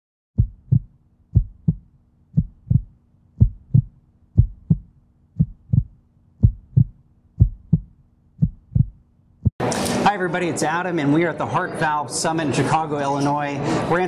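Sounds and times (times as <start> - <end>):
heartbeat thumps: 0.4 - 9.6.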